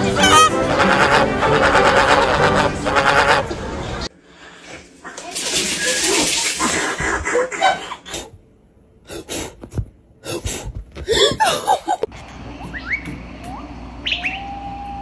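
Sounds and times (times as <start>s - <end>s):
person laughing: 11.0s - 12.1s.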